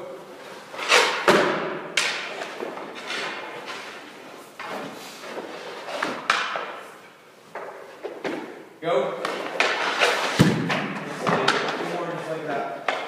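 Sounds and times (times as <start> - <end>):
skates scraping on ice: 0.4 - 7.0, 9.2 - 13.0.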